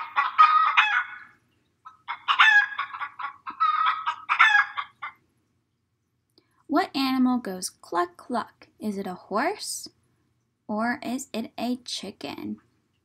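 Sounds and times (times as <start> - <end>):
chicken clucking: 0.0 - 5.2.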